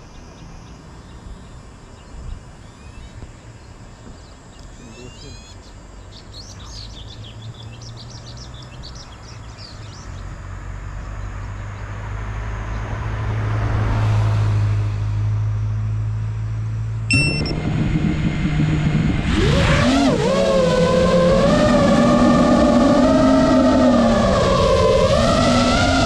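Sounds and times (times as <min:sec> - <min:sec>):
birds chirping: 0:00.0 - 0:10.4
road vehicle passing: 0:05.6 - 0:26.0
steady low hum: 0:15.4 - 0:26.0
quadcopter motors whining: 0:17.1 - 0:26.0.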